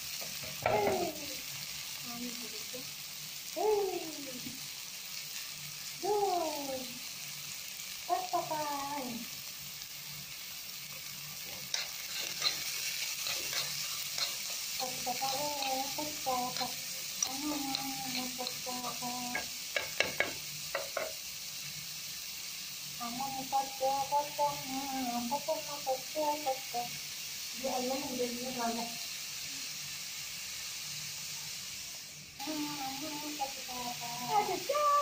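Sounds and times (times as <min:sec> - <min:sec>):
onions sizzling in oil: 0:00.0 - 0:35.0
pitched vocal sounds: 0:00.6 - 0:01.4, 0:03.6 - 0:04.6, 0:14.8 - 0:19.5, 0:23.0 - 0:26.9, 0:32.4 - 0:35.0
spatula scraping pan: 0:11.4 - 0:21.1.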